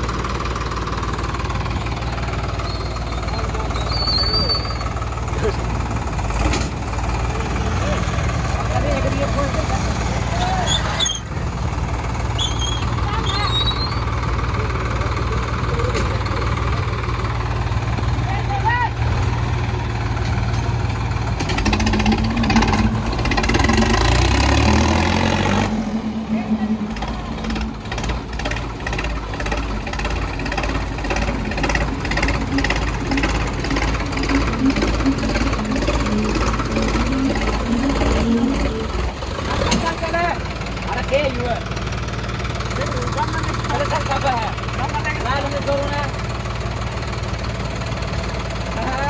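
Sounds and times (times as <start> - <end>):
tractor diesel engine running: 0.0 - 49.0.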